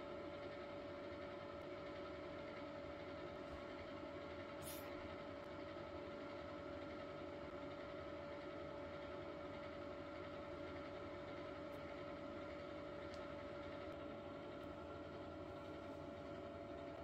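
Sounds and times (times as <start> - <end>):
steady machine hum: 0.0 - 17.0.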